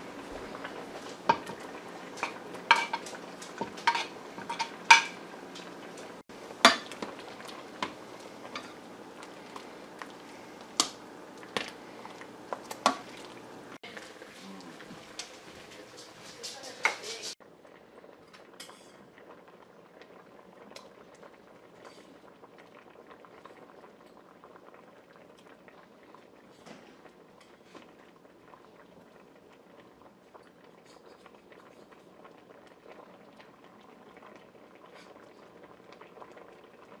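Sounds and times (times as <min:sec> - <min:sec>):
broth boiling: 0:00.0 - 0:37.0
soft bubbling with small pops: 0:17.6 - 0:37.0.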